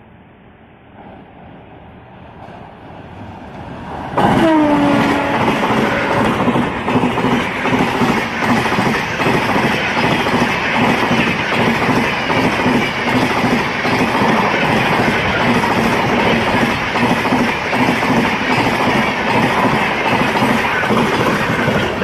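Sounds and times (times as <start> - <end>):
train rumbling past: 0.0 - 22.0
train horn: 4.2 - 6.5.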